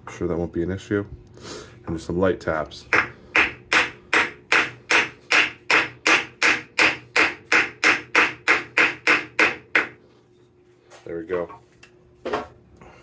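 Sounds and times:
hammer tapping on wood block: 0:02.9 - 0:10.0.

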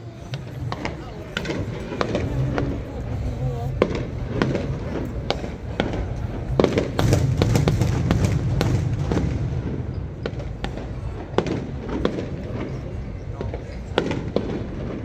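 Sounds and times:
low rumble: 0:00.0 - 0:12.0
fireworks bangs and crackles: 0:00.0 - 0:15.0.

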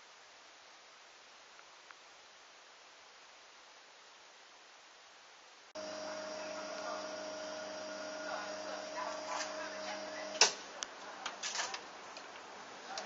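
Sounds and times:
electrical hum: 0:05.8 - 0:10.8.

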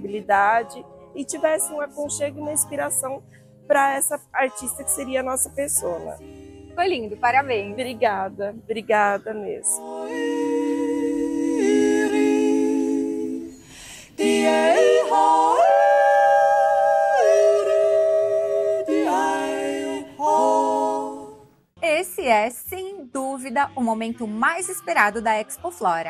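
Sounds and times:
wordless a cappella voice: 0:00.0 - 0:21.4, 0:22.2 - 0:26.0.

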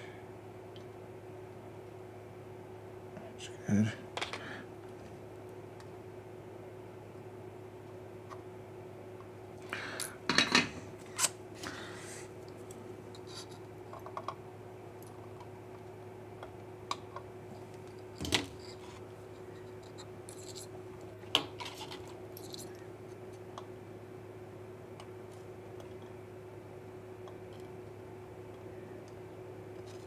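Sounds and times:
small tools clicking and scratching: 0:18.2 - 0:20.7, 0:21.6 - 0:22.8.

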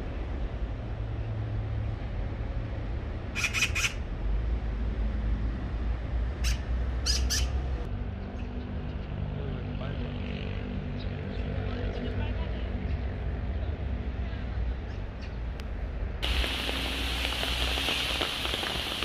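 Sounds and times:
magpie harsh calls: 0:03.4 - 0:04.0, 0:06.4 - 0:07.6
steady low rumble: 0:13.6 - 0:19.0.

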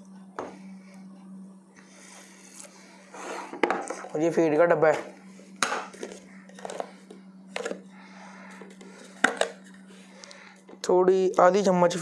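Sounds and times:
steady low hum: 0:00.0 - 0:12.0.

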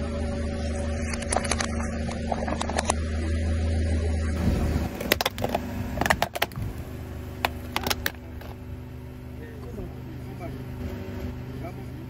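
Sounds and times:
car engine humming: 0:00.0 - 0:12.0
plastic toy cracking under tyre: 0:04.9 - 0:06.6, 0:07.4 - 0:08.6.

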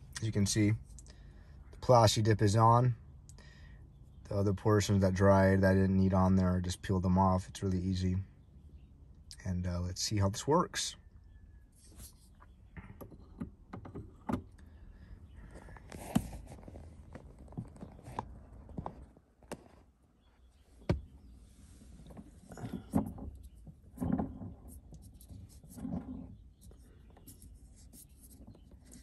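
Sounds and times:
hard plastic clicks and knocks: 0:12.8 - 0:14.6.

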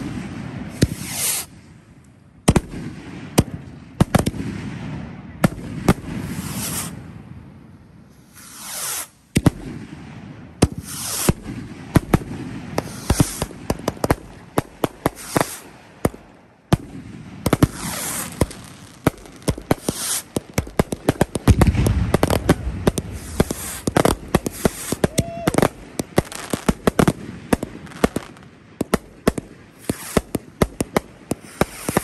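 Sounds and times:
rockets whooshing up: 0:00.0 - 0:01.8, 0:04.1 - 0:14.2, 0:16.8 - 0:32.0
sharp cracks of bursts: 0:10.6 - 0:32.0
heavy rumble: 0:21.5 - 0:24.6.

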